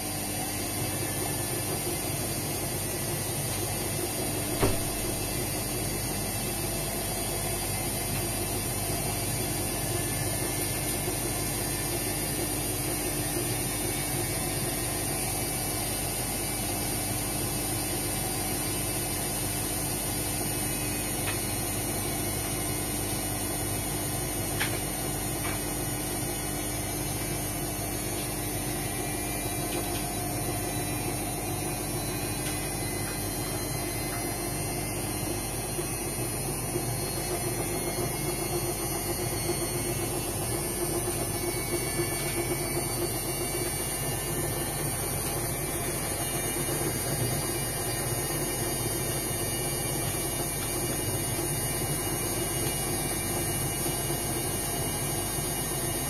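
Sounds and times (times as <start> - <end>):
washing machine motor hum: 0.0 - 56.0
washing machine drum turning: 4.3 - 5.8.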